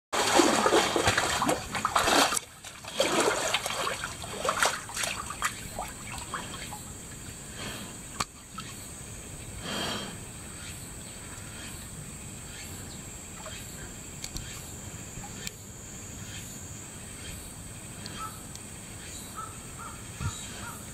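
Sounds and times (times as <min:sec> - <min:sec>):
water splashing and sloshing: 0:00.2 - 0:07.4.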